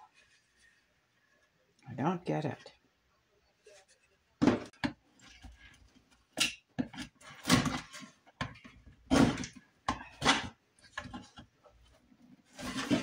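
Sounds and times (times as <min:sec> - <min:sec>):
wood scraping and knocking: 0:12.5 - 0:13.0.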